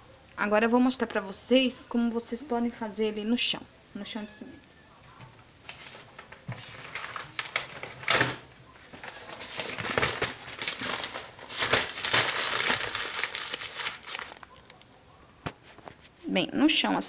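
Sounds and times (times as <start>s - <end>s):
paper crumpling and rustling: 5.6s - 16.2s.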